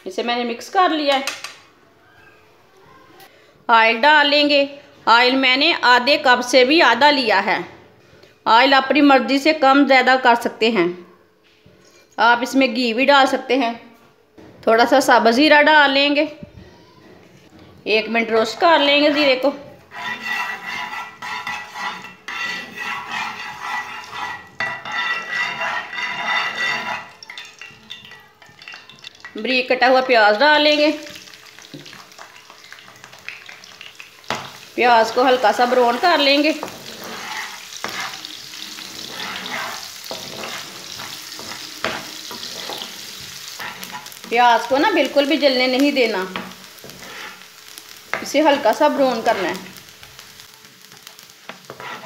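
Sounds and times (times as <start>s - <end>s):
metal skimmer scraping frying pan: 18.6s - 28.5s, 34.3s - 49.8s, 51.5s - 52.0s
seeds roasting in hot oil: 19.9s - 29.7s, 30.3s - 52.0s.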